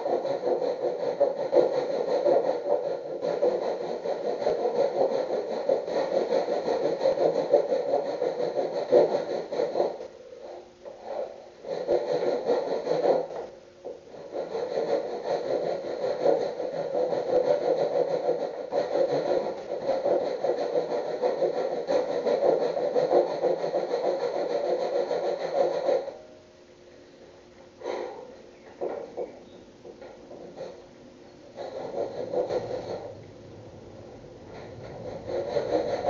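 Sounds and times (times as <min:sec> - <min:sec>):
handsaw cutting wood: 0:00.0 - 0:10.0, 0:11.6 - 0:13.4, 0:14.2 - 0:26.2, 0:31.6 - 0:33.2, 0:34.5 - 0:36.0.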